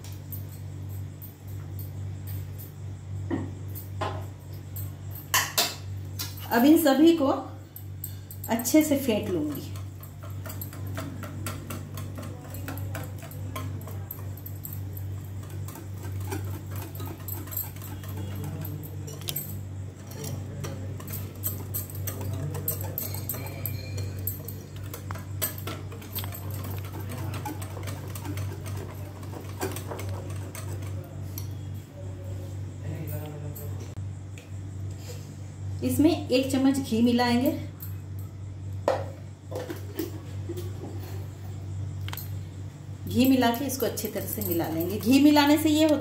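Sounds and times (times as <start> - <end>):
steady low hum: 0.0 - 46.0
utensil beating marinade in bowl: 8.4 - 31.8.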